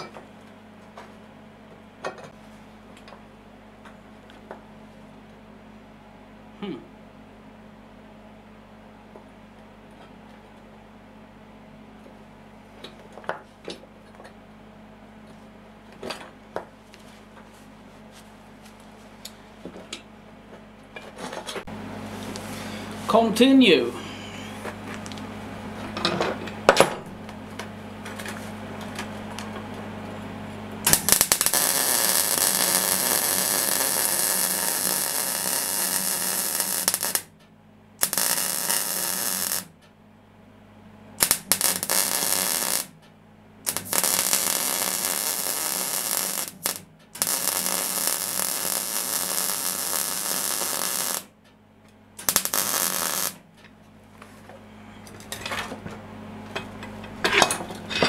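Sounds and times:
electrical hum: 0.0 - 58.0
welding arc crackling: 30.8 - 37.3, 38.0 - 39.7, 41.2 - 43.0, 43.6 - 51.4, 52.2 - 53.5.

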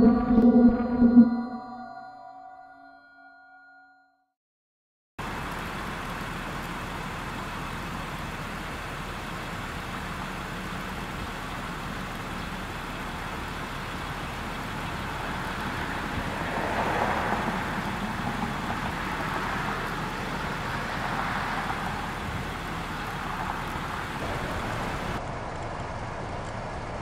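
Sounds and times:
distant road traffic rumble: 5.2 - 27.0
vehicle passing: 15.1 - 26.4.

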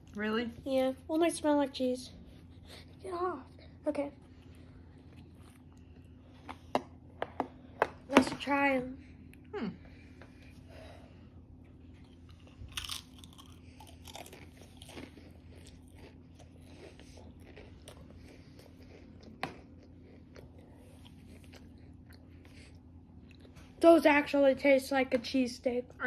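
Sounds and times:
chewing: 4.4 - 6.7, 11.9 - 23.7
crisp bitten with a crunch: 12.0 - 22.2.

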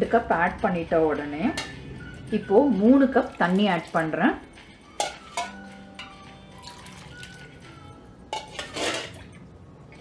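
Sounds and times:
soft background music: 0.0 - 10.0
water splashing into a pot: 3.1 - 4.2, 5.0 - 7.7, 8.4 - 10.0.

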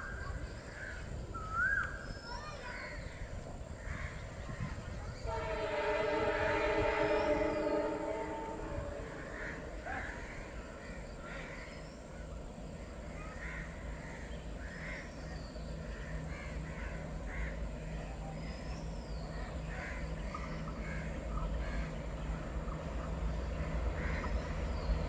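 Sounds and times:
diesel locomotive rumble: 2.3 - 25.0
crows cawing: 8.9 - 11.7.

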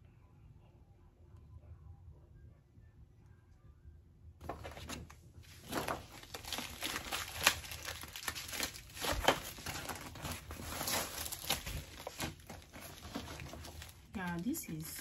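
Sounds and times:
packaging crinkling and rustling: 4.4 - 15.0
sharp packaging crackles: 4.4 - 15.0.

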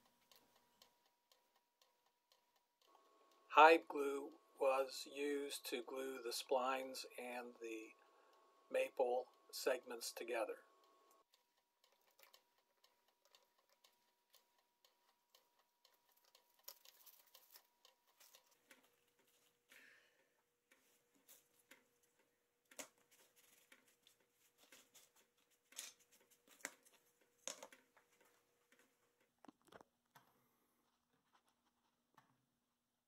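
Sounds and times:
paper rustling: 20.7 - 28.9.

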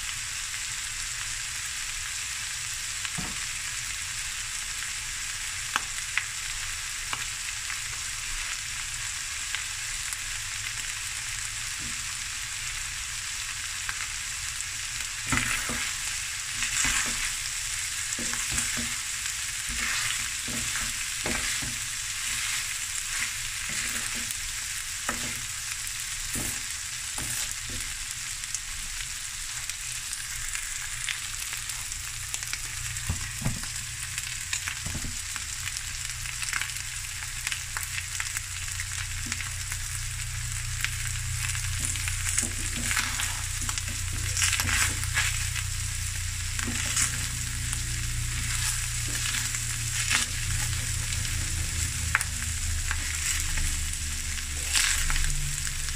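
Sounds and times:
food sizzling in a wok: 0.0 - 55.9
wooden spoon scraping a pan: 15.3 - 25.6, 26.3 - 28.0, 41.8 - 45.7, 46.6 - 55.4.

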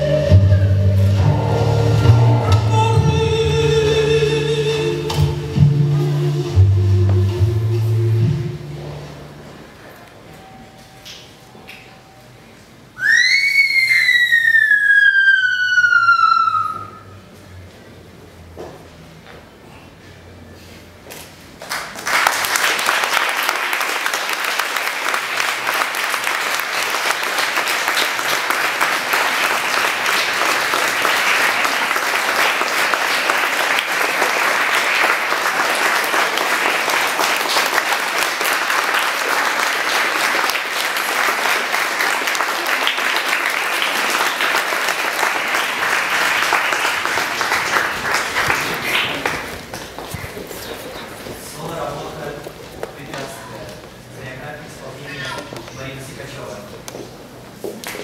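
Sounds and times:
audience applauding: 21.6 - 51.2.

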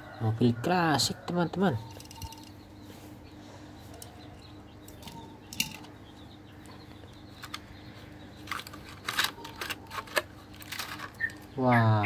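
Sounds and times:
plastic packaging crackling: 8.4 - 11.4.

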